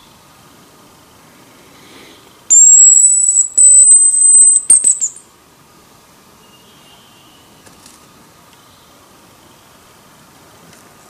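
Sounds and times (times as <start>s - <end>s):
high bird-call whistle: 2.5s - 5.2s, 6.4s - 7.7s.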